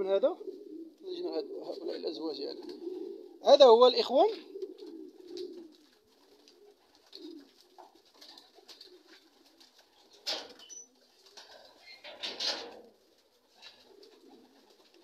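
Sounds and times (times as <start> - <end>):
pigeons cooing: 0.0 - 15.0.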